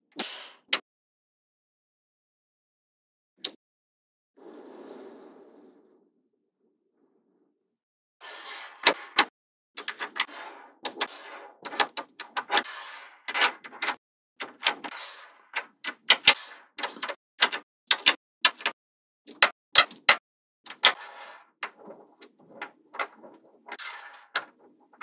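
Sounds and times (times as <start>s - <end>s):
balls rattling and rolling: 8.5s - 25.0s.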